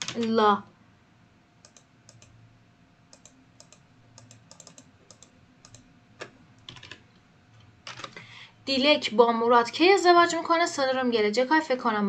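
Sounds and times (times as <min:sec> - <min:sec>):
keyboard typing: 0:00.0 - 0:00.4, 0:01.6 - 0:02.4, 0:03.1 - 0:07.1, 0:07.8 - 0:08.2.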